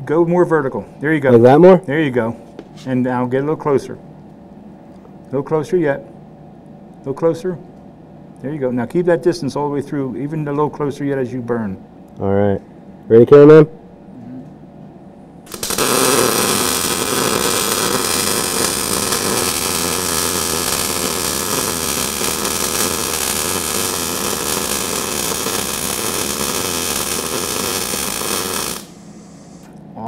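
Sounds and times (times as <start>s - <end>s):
welding arc crackling: 15.4s - 29.7s.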